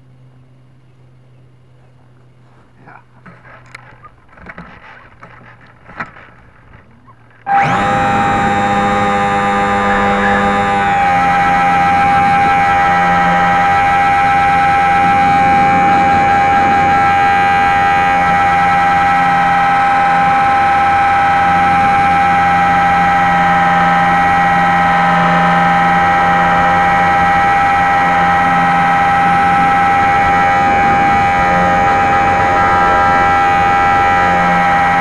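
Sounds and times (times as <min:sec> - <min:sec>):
electric motor and propeller whine: 0:00.0 - 0:35.0.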